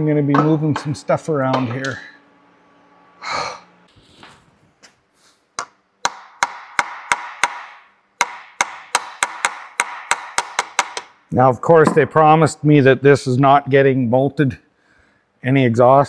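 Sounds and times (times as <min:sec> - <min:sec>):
breathy exhale: 0:03.2 - 0:03.7.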